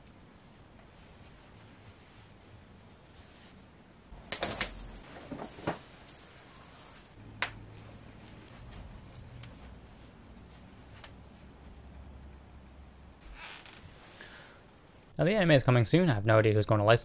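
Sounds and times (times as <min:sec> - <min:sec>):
fabric rustle: 0:00.2 - 0:04.2, 0:07.8 - 0:11.8.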